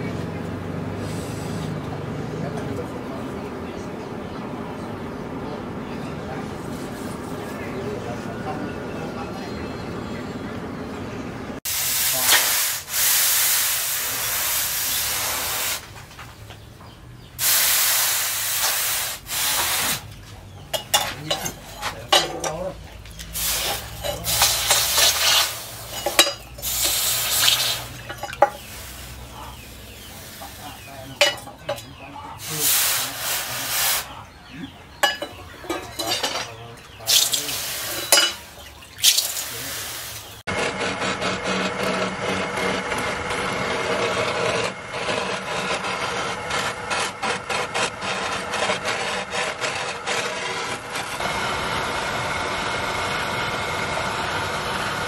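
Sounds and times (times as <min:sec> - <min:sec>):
water splashing: 0:22.8 - 0:31.4, 0:35.6 - 0:40.4
hot blade sizzling in water: 0:23.4 - 0:29.2, 0:37.1 - 0:40.3.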